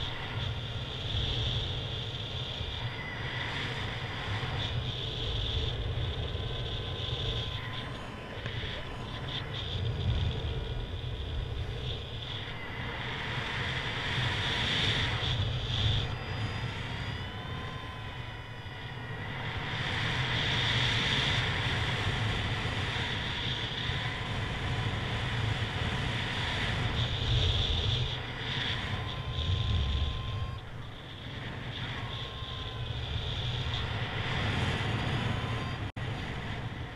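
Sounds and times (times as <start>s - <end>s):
wind rushing over microphone: 0.0s - 36.9s
faint thin whistling: 26.7s - 35.9s.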